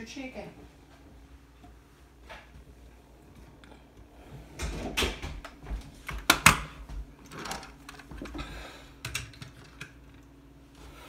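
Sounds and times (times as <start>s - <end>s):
knocks and clicks of handling: 4.6s - 10.3s.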